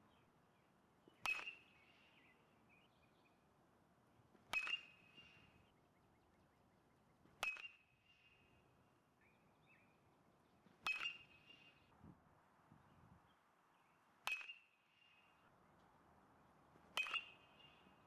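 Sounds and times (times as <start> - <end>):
metal bat hitting baseball: 1.2 - 1.7, 4.4 - 5.0, 7.4 - 7.8, 10.8 - 11.4, 14.2 - 14.6, 16.9 - 17.7.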